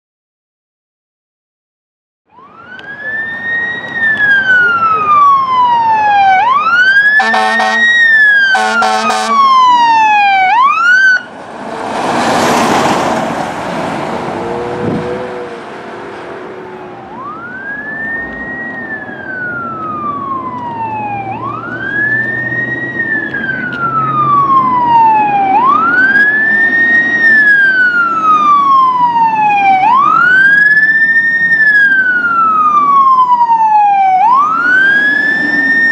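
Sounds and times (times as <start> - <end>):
fire engine siren wailing: 2.3 - 35.9
pulsing horn blasts: 7.2 - 9.8, 14.3 - 15.7
loud rushing noise: 11.3 - 16.9.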